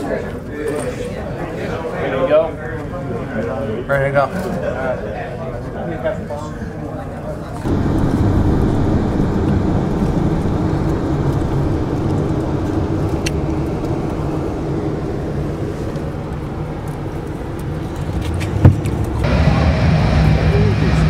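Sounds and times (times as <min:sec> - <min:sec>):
van engine and road noise: 0:07.6 - 0:21.0.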